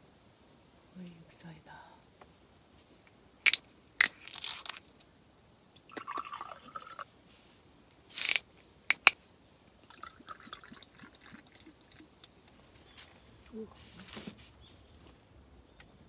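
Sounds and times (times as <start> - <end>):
drink pouring into glass: 5.8 - 7.1, 9.8 - 12.3
short hiss: 8.1 - 9.1.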